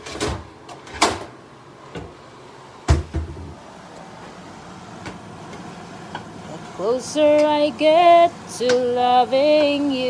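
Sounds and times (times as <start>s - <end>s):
knocks and clatters in cabinet: 2.9s - 3.6s.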